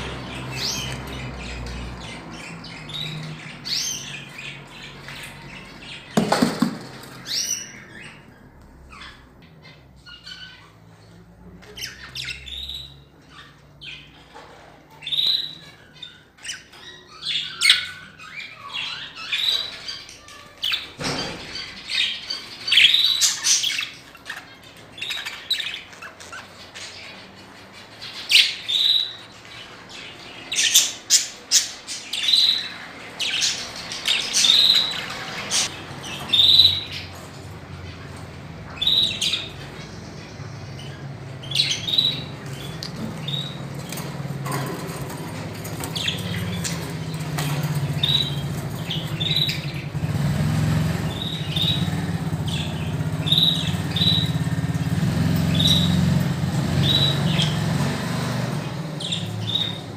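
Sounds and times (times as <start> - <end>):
budgerigars chirping and squawking: 0.0 - 59.9
knock: 6.2 - 7.0.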